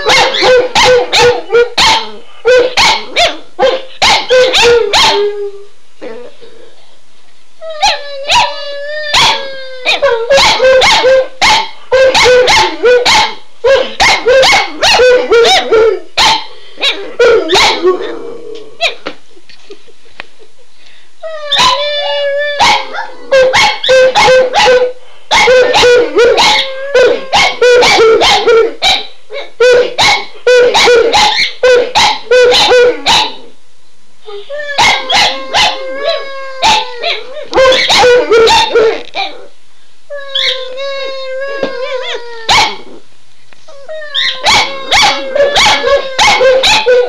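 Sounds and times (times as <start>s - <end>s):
dog barking: 0.0s - 5.2s, 9.2s - 17.9s, 22.6s - 33.5s, 34.8s - 35.8s, 36.6s - 39.4s, 42.5s - 42.9s, 44.2s - 47.0s
dog howling: 34.4s - 39.5s, 40.2s - 43.0s, 43.7s - 47.0s.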